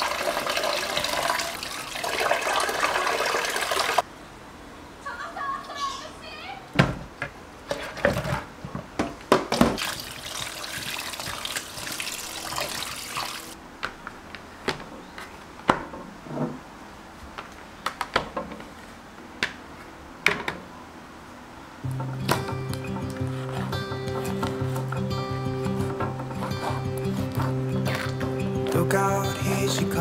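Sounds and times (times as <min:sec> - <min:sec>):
items knocking and clattering: 0:06.8 - 0:12.0, 0:21.9 - 0:28.8.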